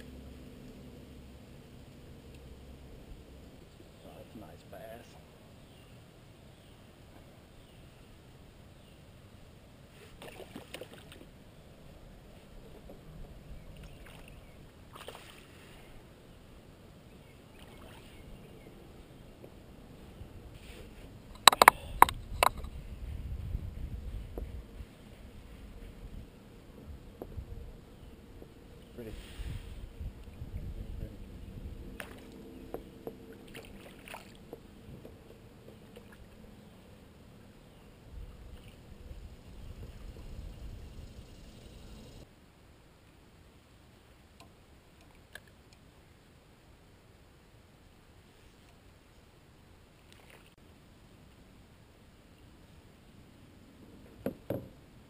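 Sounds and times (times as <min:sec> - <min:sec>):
low wind rumble: 0:00.0 - 0:09.9, 0:11.3 - 0:44.0
short water splashes: 0:10.0 - 0:11.3, 0:13.8 - 0:15.7, 0:17.6 - 0:18.2, 0:32.0 - 0:32.4, 0:33.3 - 0:34.4
water sloshing: 0:10.1 - 0:11.3, 0:13.8 - 0:15.7, 0:33.2 - 0:36.4.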